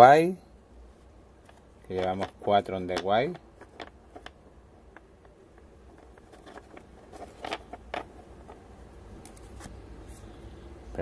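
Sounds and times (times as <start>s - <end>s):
trading cards rustling: 1.5s - 10.3s.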